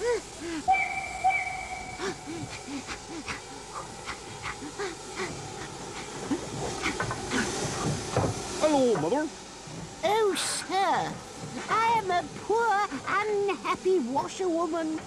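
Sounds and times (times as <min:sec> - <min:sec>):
steam hissing: 0:00.0 - 0:15.0
steam locomotive whistle: 0:00.7 - 0:02.2.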